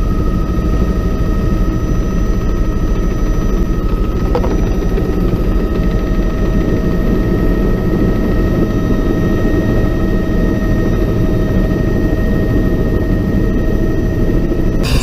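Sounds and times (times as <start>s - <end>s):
aircraft engine rumbling: 2.4s - 8.2s.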